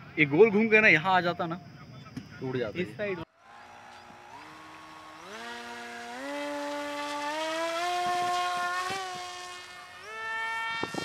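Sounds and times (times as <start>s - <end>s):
electric motor and propeller whining: 3.4s - 11.0s.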